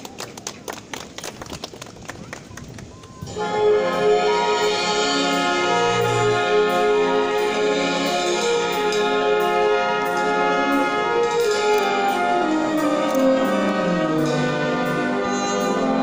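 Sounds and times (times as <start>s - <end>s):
brass band playing slow chords: 3.3s - 16.0s.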